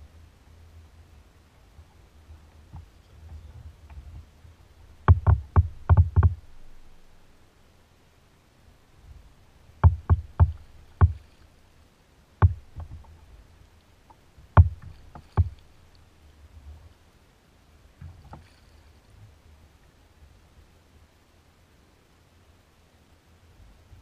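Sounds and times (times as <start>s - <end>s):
paddle knocking on kayak: 5.0s - 6.6s, 9.8s - 11.4s, 12.4s - 13.1s, 14.5s - 15.7s.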